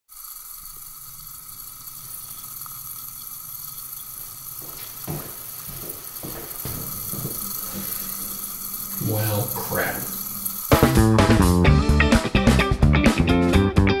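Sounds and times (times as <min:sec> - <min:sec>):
toilet tank water hissing: 0:00.1 - 0:11.7
soft footsteps: 0:04.2 - 0:10.2.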